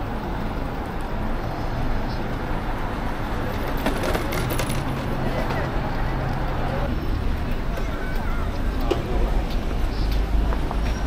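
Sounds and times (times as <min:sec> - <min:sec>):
cars passing: 0:00.0 - 0:11.0.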